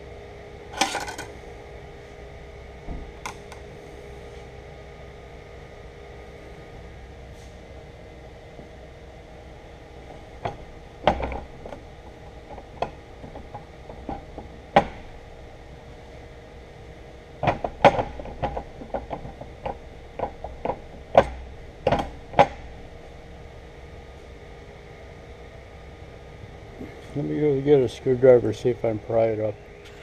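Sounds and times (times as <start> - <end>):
steady hum: 0.0 - 30.0
metal clinks and knocks: 0.8 - 1.3.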